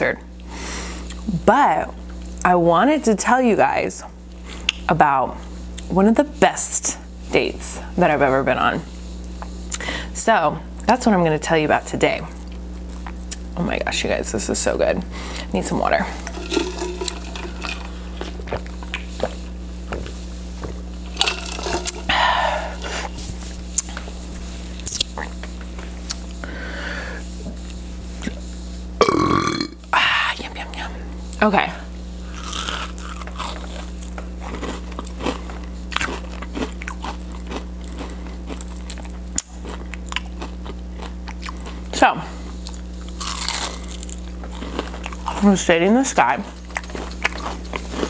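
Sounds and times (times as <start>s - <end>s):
steady low hum: 0.0s - 48.0s
crunchy chewing: 16.1s - 19.6s, 32.2s - 45.6s, 46.4s - 48.0s
person gulping water: 16.2s - 18.7s, 21.1s - 22.1s, 29.0s - 29.8s
breathy exhale: 26.4s - 27.3s.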